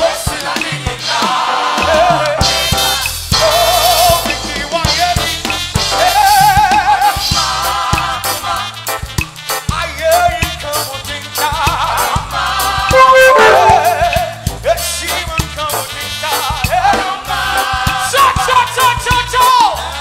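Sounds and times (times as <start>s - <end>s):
gospel singers: 0.0s - 9.0s, 10.7s - 20.0s
band playing: 12.9s - 14.5s
drum kit beat: 12.9s - 14.6s.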